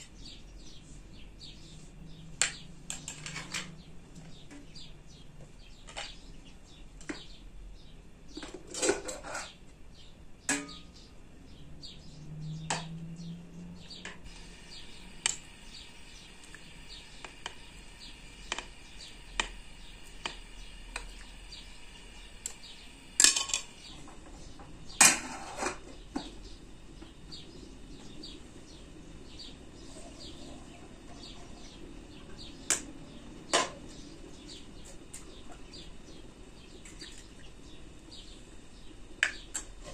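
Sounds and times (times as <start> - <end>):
dishes clinking: 23.2 - 23.8.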